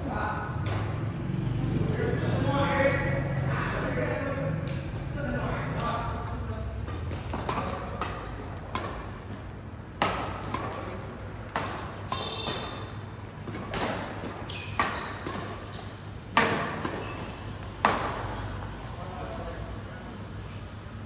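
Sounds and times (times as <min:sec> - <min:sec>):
racket striking shuttlecock: 0:00.6 - 0:01.2, 0:05.8 - 0:18.7
shoe squeaks on court: 0:07.5 - 0:09.2, 0:12.0 - 0:17.6.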